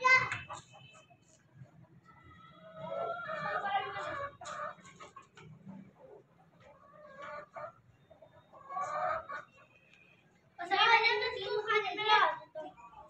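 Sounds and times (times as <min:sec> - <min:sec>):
chickens clucking: 0:00.0 - 0:10.1.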